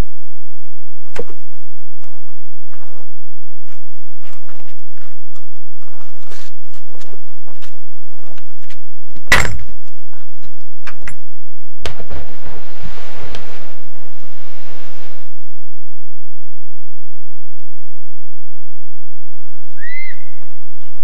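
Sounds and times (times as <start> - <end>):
rushing noise: 11.9 - 19.7.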